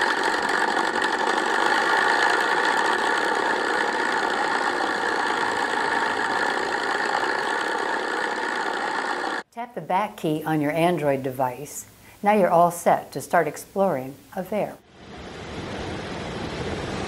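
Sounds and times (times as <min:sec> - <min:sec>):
steady engine-like drone: 0:00.0 - 0:09.4.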